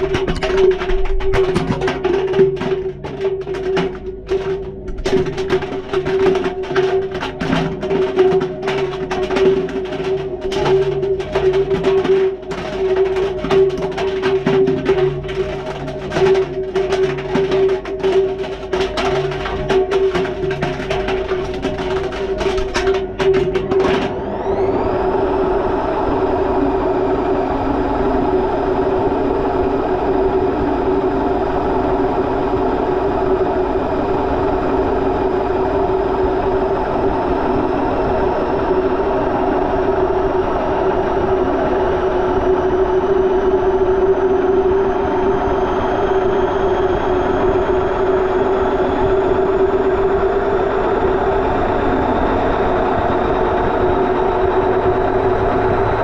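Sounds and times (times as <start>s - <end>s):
items knocking in washing drum: 0.0s - 24.3s, 46.0s - 56.0s
washing machine motor whine: 0.0s - 30.0s.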